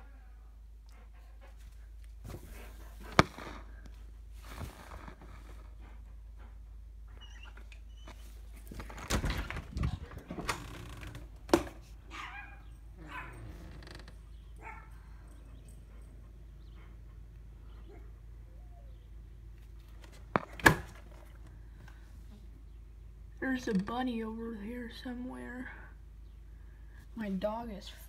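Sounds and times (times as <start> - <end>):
dog whining: 7.1 - 8.4, 12.1 - 13.6.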